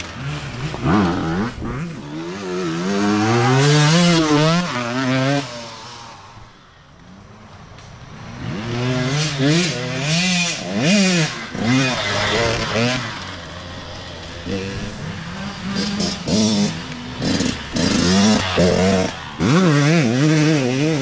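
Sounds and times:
dirt bike engine revving: 0.0s - 6.5s, 8.2s - 21.0s.

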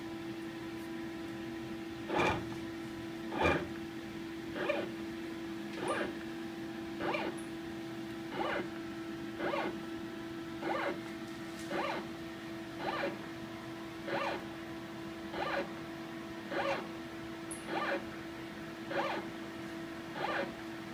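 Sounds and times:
steady hum: 0.0s - 20.9s
motor whirring strokes: 2.1s - 2.6s, 3.3s - 3.7s, 4.6s - 4.9s, 5.8s - 6.2s, 7.0s - 7.4s, 8.3s - 8.7s, 9.4s - 9.8s, 10.6s - 11.0s, 11.7s - 12.1s, 12.8s - 13.2s, 14.0s - 14.4s, 15.3s - 15.7s, 16.5s - 16.9s, 17.7s - 18.0s, 18.9s - 19.3s, 20.1s - 20.6s.

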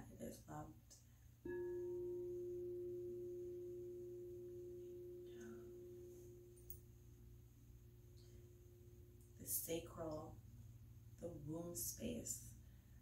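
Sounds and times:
singing bowl ringing: 1.4s - 9.4s.

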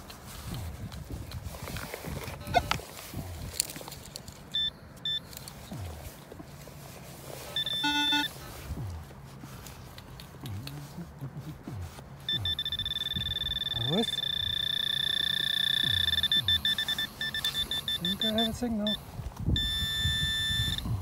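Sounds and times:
metal detector beeps: 4.5s - 5.9s, 7.5s - 8.4s, 12.3s - 21.0s
metal detector pulsing tone: 4.5s - 5.9s, 7.6s - 8.4s, 12.3s - 21.0s
metal detector buzzing tone: 4.6s - 5.4s, 7.6s - 8.4s, 12.3s - 19.0s, 19.6s - 21.0s.

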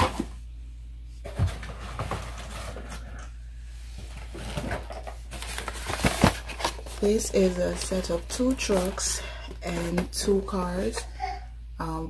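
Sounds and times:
low steady hum: 0.0s - 12.0s
packaging knocks and rustles: 4.1s - 10.4s.

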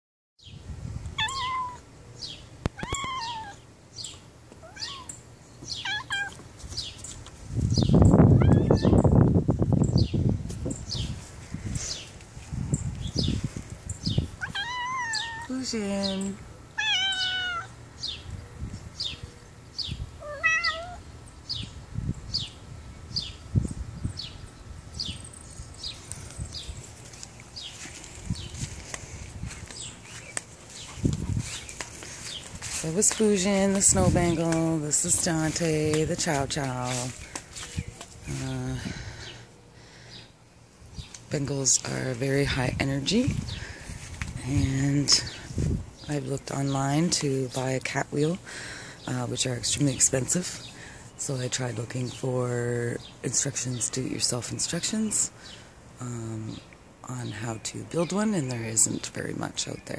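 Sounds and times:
cat meowing: 1.2s - 1.8s, 2.8s - 3.6s, 4.6s - 5.1s, 5.8s - 6.4s, 8.4s - 9.0s, 14.4s - 15.5s, 16.8s - 17.7s, 20.2s - 21.0s.

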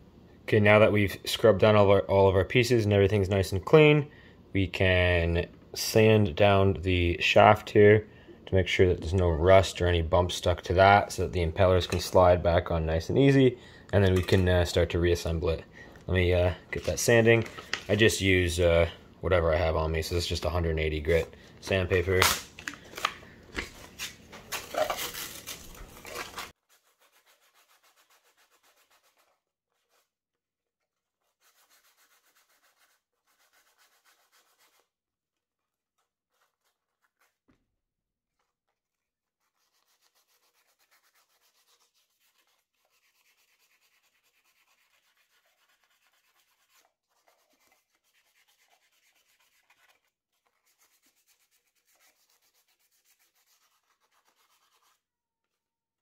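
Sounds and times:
sandpaper rubbing on metal: 24.8s - 30.1s, 31.0s - 34.9s, 39.3s - 55.0s.

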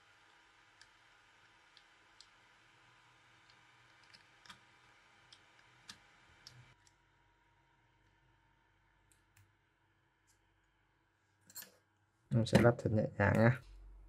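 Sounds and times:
faint clicks of small tools: 0.2s - 2.4s, 9.0s - 9.6s, 11.4s - 11.9s.

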